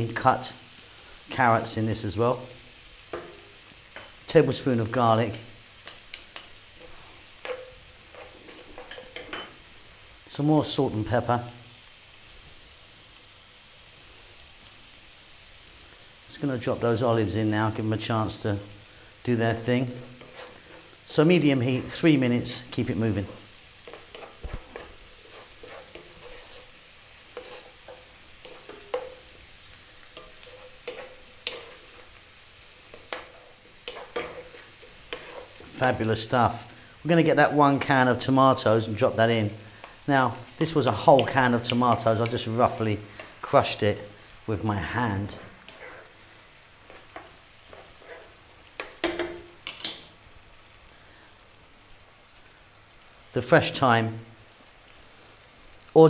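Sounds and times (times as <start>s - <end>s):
vegetables sizzling in a frying pan: 0.0s - 56.0s
wooden spatula scraping a pan: 5.4s - 9.7s, 19.6s - 36.4s, 37.7s - 50.2s.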